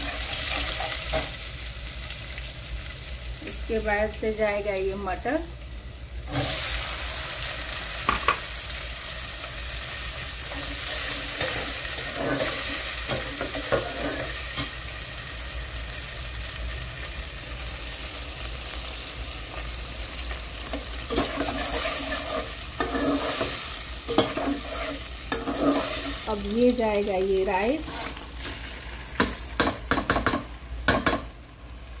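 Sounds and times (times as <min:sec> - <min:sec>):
peas sizzling in oil: 0:00.0 - 0:32.0
metal spatula scraping pot: 0:10.5 - 0:14.4, 0:21.1 - 0:26.2, 0:27.8 - 0:28.6.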